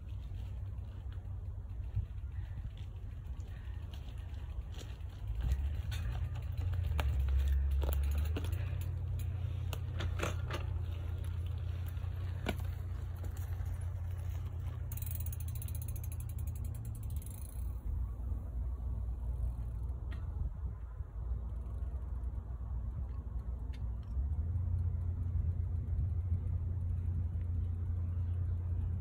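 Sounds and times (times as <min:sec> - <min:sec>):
bicycle freewheel ticking: 0:00.0 - 0:19.8, 0:24.2 - 0:29.0
low rumble: 0:00.0 - 0:29.0.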